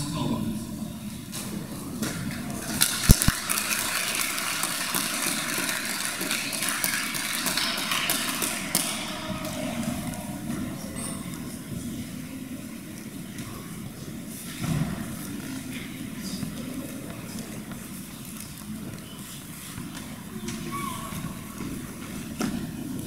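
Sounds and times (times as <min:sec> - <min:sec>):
audience clapping: 0:02.6 - 0:09.8.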